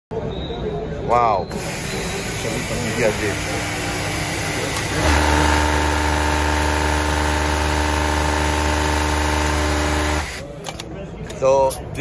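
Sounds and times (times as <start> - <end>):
industrial sewing machine running: 1.5 - 10.4.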